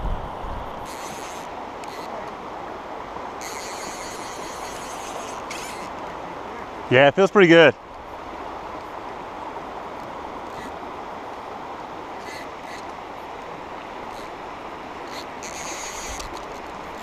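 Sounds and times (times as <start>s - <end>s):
river rushing over rocks: 0.0s - 17.0s
fly reel whirring: 0.8s - 2.2s, 3.4s - 6.0s, 12.2s - 12.9s, 15.0s - 17.0s.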